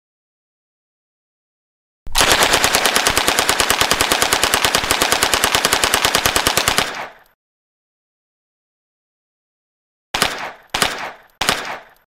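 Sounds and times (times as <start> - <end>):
submachine gun full-auto burst: 2.1 - 7.1
gunfire echo: 6.6 - 7.2, 10.2 - 12.0.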